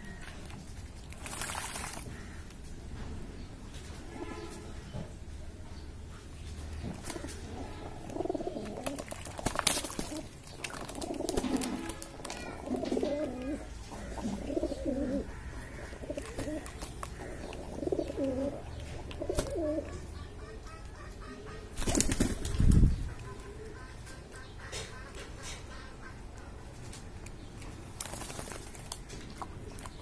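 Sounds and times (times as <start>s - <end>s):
water splashing: 1.0s - 2.3s, 8.6s - 12.3s
wings flapping: 1.1s - 2.1s, 8.6s - 13.0s, 21.7s - 22.9s, 28.0s - 29.0s
pigeons cooing: 6.8s - 26.6s.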